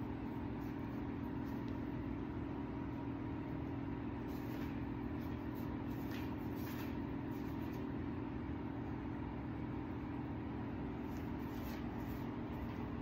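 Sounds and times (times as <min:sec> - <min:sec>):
steady low hum: 0:00.0 - 0:13.0
faint soft rustles: 0:04.2 - 0:08.0, 0:11.0 - 0:13.0.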